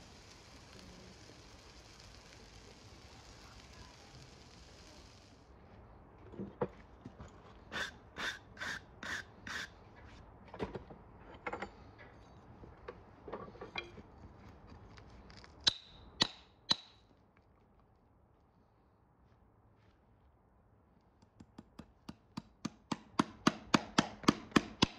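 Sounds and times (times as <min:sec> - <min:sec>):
brushing strokes on hoof: 0:00.1 - 0:05.4, 0:07.7 - 0:10.3.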